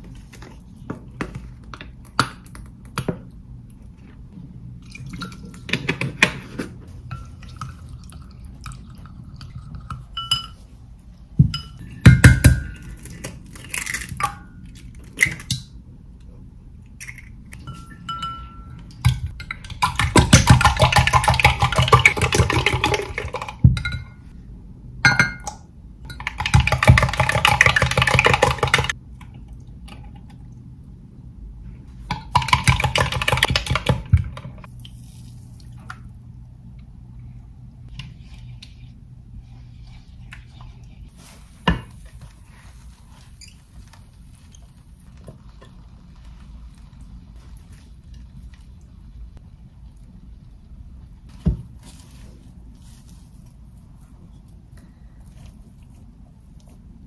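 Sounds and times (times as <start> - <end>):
rapid whisking against glass: 19.4 - 24.1, 26.1 - 29.0.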